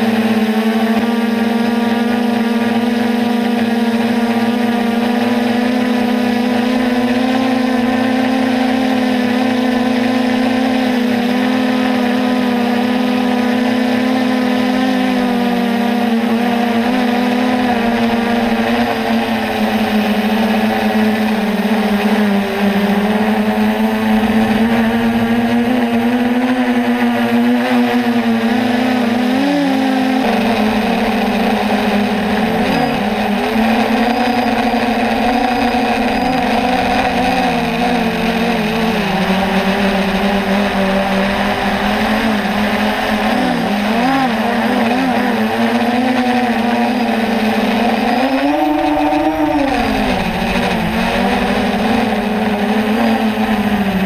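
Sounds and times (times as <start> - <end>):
drone motors whining: 0.0 - 54.0.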